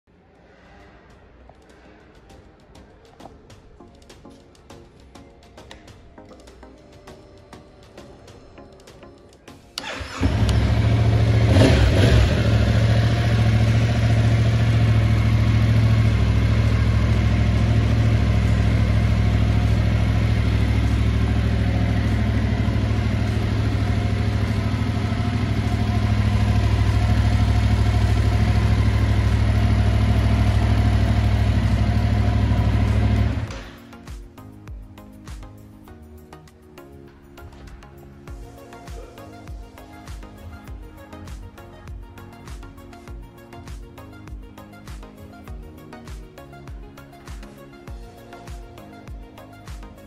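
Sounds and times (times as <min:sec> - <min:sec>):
motorcycle engine starting and idling: 0:09.8 - 0:33.9.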